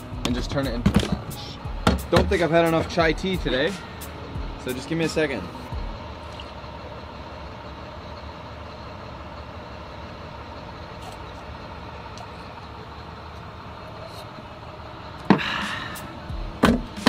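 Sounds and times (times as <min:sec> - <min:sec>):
truck engine idling: 0:00.0 - 0:17.0
sharp knock: 0:01.8 - 0:02.4.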